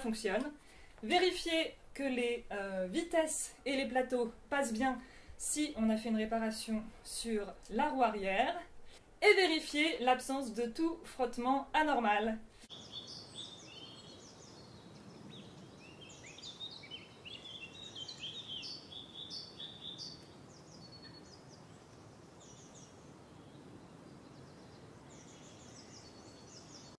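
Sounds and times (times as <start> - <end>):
faint steady hiss: 0.0 - 26.9
small birds chirping: 11.3 - 26.9.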